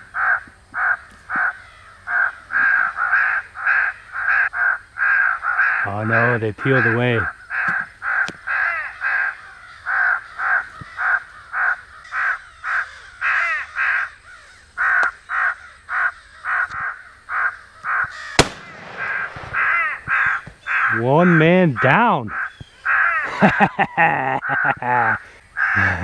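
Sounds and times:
electronic crow caws: 0.1s - 18.4s, 19.0s - 26.0s
gunshot: 18.4s - 20.0s.

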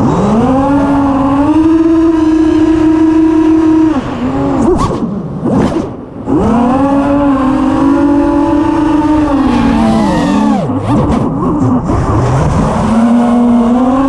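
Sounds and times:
quadcopter motors whining: 6.3s - 11.1s.

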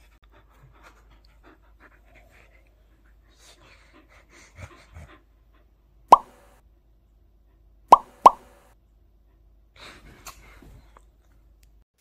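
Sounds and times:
dog panting: 0.0s - 6.0s.

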